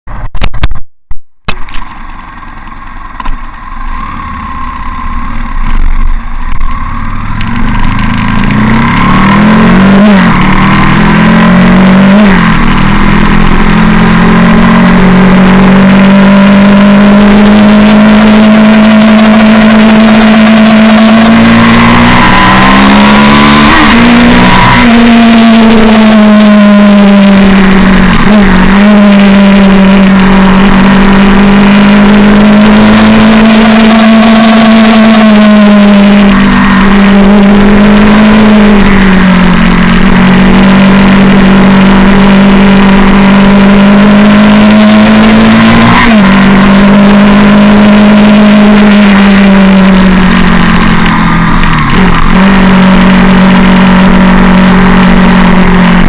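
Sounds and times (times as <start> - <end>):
motorcycle engine accelerating: 1.4 - 56.0.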